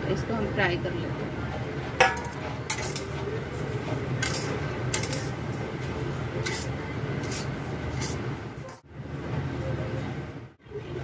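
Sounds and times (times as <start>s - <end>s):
metal clinking on a pan: 2.0s - 3.2s, 4.2s - 5.3s.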